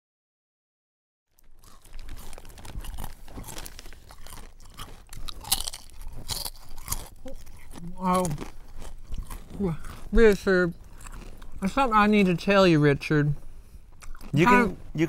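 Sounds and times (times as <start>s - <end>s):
person chewing potato chips: 1.3s - 12.3s, 13.9s - 14.7s.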